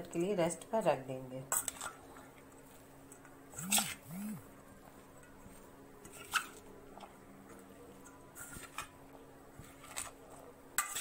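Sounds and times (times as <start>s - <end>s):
faint steady hum: 0.0s - 11.0s
vegetables stirred in steel bowl: 1.4s - 2.9s, 5.1s - 11.0s.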